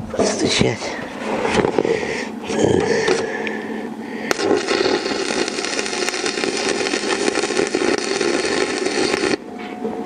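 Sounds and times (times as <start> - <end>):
welding arc crackling: 4.2 - 9.5.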